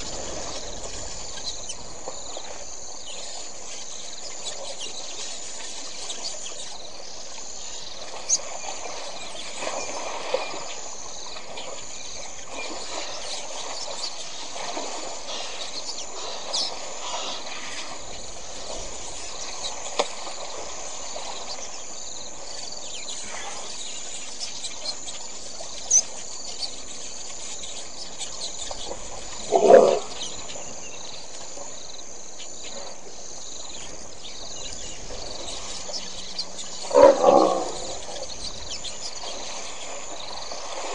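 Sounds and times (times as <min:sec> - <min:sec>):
insects chirring: 0:00.0 - 0:40.9
elephants splashing in water: 0:08.0 - 0:22.4, 0:36.8 - 0:40.9.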